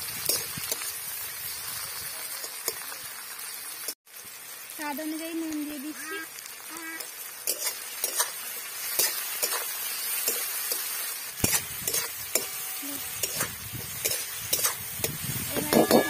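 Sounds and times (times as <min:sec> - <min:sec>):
food sizzling in oil: 0:00.0 - 0:16.0
metal spatula scraping a pan: 0:07.0 - 0:16.0.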